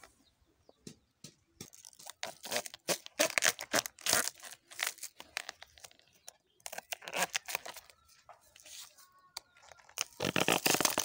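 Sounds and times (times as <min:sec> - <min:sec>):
banana stem sheaths ripping: 0:01.7 - 0:08.0, 0:09.4 - 0:11.0.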